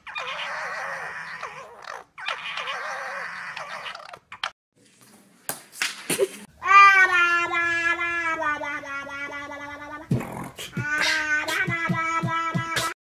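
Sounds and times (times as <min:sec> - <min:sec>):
foxes screaming: 0:00.0 - 0:04.5.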